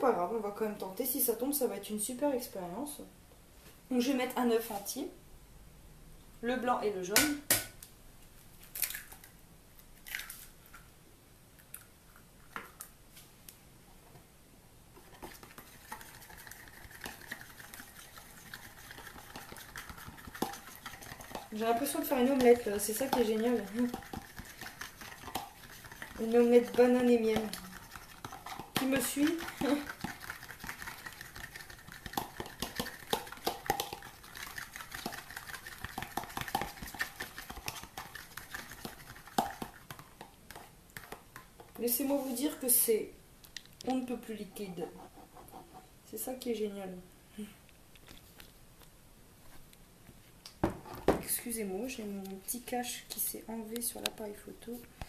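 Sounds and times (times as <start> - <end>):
utensil beating egg in bowl: 15.0 - 42.2.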